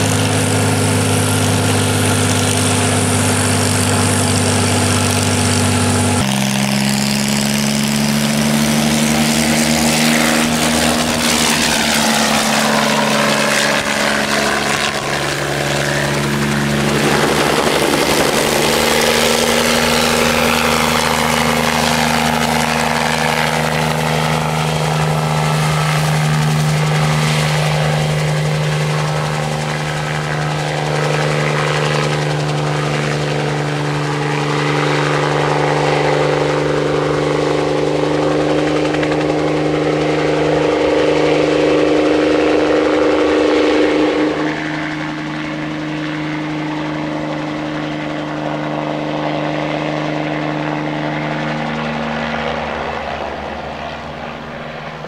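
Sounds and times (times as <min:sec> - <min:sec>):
helicopter engine and rotor: 0:00.0 - 0:55.0.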